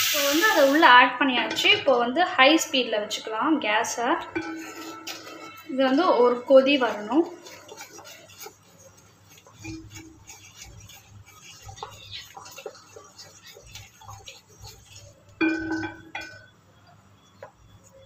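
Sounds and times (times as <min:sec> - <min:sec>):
spatula scraping pan: 0:04.0 - 0:16.5
ringing clink of pan: 0:15.4 - 0:16.5.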